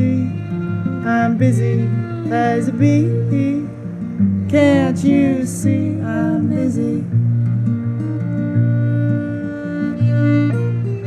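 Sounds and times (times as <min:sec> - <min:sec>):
man singing: 0:00.0 - 0:03.8, 0:04.5 - 0:07.2
acoustic guitar strumming: 0:00.0 - 0:11.0
bowed fiddle: 0:00.0 - 0:11.0.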